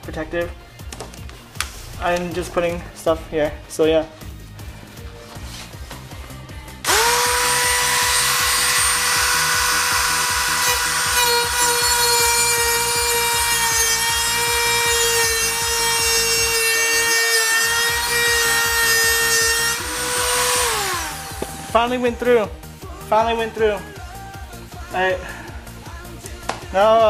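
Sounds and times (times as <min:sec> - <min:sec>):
rotary tool cutting sheet metal: 0:06.9 - 0:21.7.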